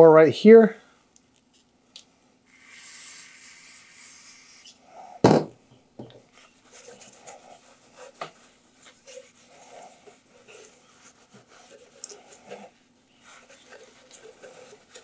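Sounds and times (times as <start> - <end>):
aerosol can spraying: 2.5 - 4.8
metal part knocking on workbench: 5.2 - 6.2
soft rubbing: 6.3 - 15.0.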